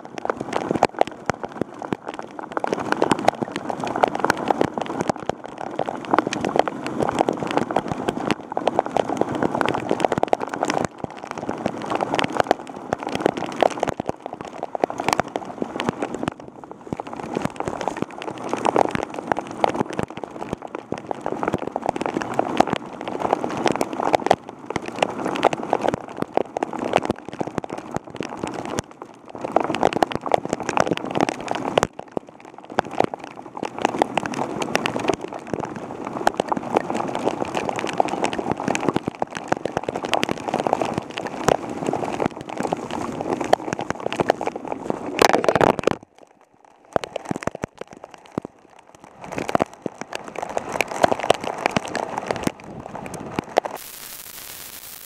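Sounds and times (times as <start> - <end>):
heavy rain on camera housing: 0.0 - 55.0.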